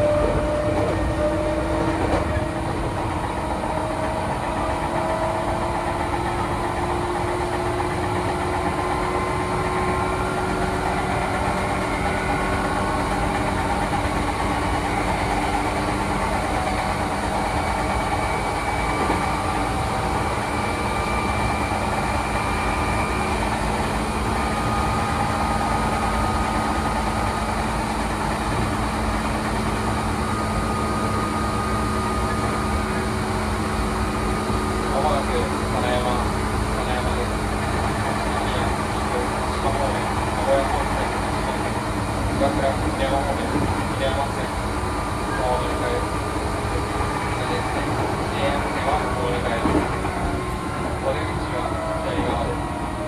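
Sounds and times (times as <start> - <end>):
traction motors whining: 0.0 - 53.0
train running rumble: 0.0 - 53.0.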